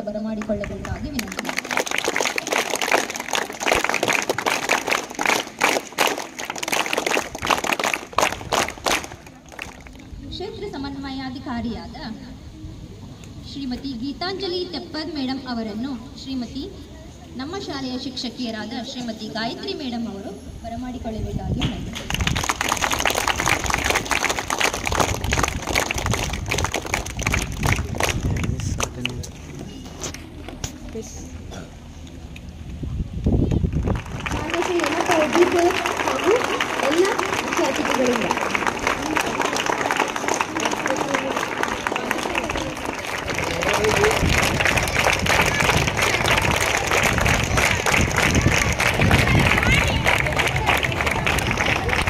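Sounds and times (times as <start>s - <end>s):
audience applause: 0.4s - 10.1s, 22.0s - 29.2s, 33.7s - 52.0s
children clapping: 0.4s - 10.1s, 21.9s - 29.2s, 33.6s - 52.0s.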